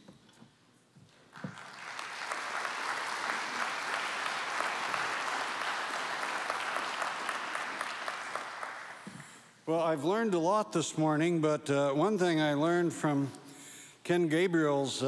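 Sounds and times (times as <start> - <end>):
audience applauding: 1.3 - 9.5.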